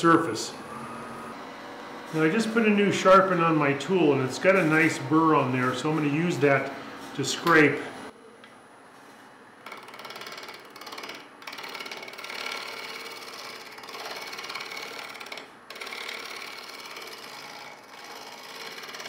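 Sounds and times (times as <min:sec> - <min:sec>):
gouge scraping wood on lathe: 0:09.6 - 0:19.0.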